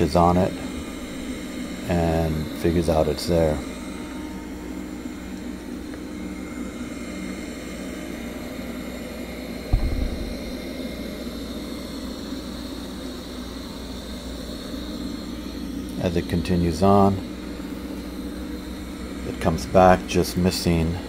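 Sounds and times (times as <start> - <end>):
faint high whine: 0.0 - 21.0
robot vacuum running on carpet: 5.0 - 17.2
low thump: 9.7 - 10.4.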